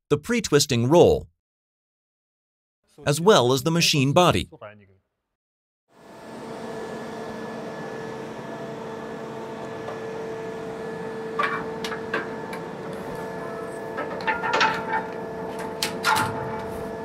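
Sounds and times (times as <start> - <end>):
electrical hum of machinery: 6.0 - 17.0.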